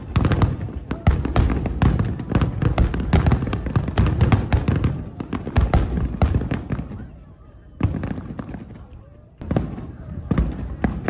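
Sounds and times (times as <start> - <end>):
fireworks booming and crackling: 0.0 - 11.0.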